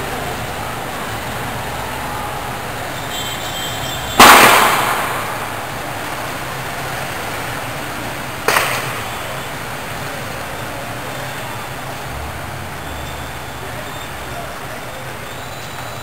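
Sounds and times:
tear gas launcher bangs: 0:04.2 - 0:06.0.

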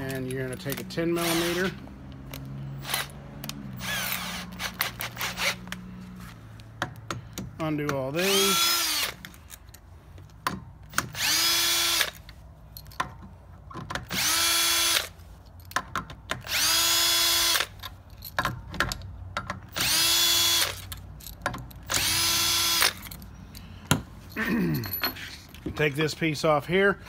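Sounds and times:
cordless drill whine: 0:01.2 - 0:01.7, 0:03.8 - 0:05.6, 0:08.2 - 0:09.2, 0:11.2 - 0:12.2, 0:14.1 - 0:15.1, 0:16.5 - 0:17.7, 0:19.8 - 0:20.8, 0:21.9 - 0:23.0.

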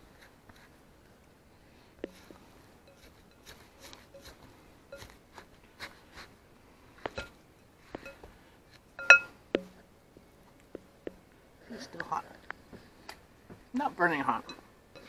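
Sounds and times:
spatula scraping in bowl: 0:02.0 - 0:05.2
spatula knocking glass bowl: 0:09.0 - 0:09.8.

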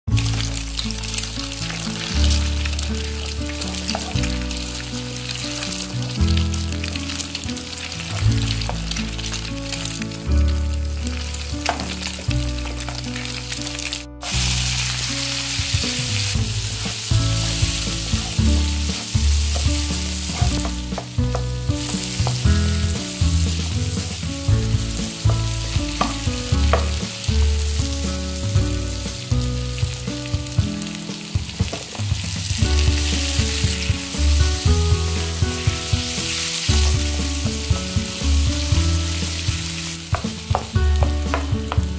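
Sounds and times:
background music: 0:00.0 - 0:41.9
oil sizzling in a frying pan: 0:00.1 - 0:41.9
spatula stirring: 0:00.4 - 0:05.8, 0:11.2 - 0:13.4, 0:14.2 - 0:28.0.

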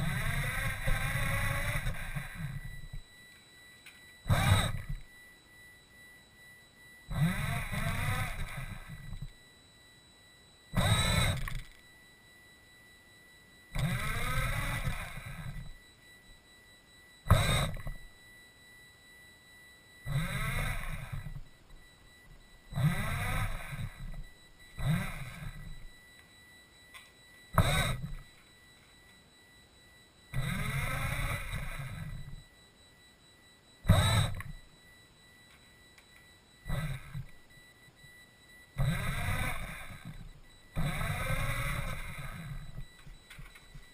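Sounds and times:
electric motors and gears whining: 0:00.0 - 0:43.9.

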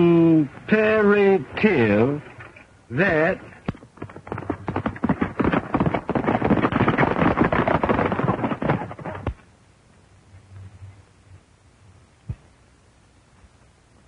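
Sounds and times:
galloping horse hoofbeats: 0:03.0 - 0:09.4.

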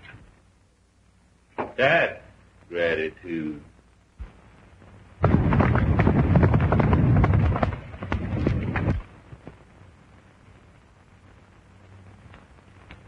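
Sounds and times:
horse hoofbeats galloping: 0:05.2 - 0:09.1
heavy rumble: 0:05.2 - 0:09.8.

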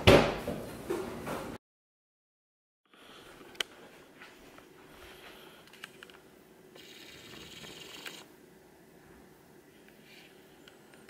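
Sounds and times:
faint steady hum: 0:02.9 - 0:11.0.

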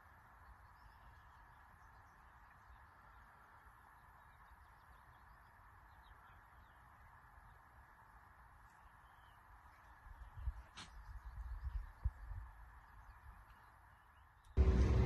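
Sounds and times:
faint outdoor hiss: 0:00.0 - 0:15.0
faint bird chirps: 0:08.7 - 0:14.6.

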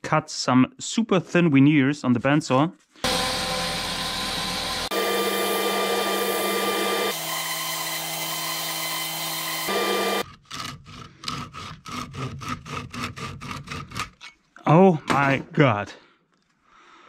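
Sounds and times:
bandsaw running: 0:03.0 - 0:14.2
utility knife cutting veneer: 0:03.0 - 0:14.4.

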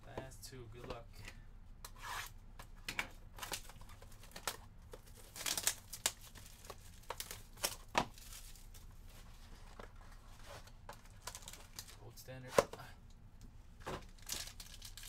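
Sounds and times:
plastic wrap crinkling and tearing: 0:03.4 - 0:08.9, 0:11.0 - 0:12.0, 0:14.1 - 0:15.0.

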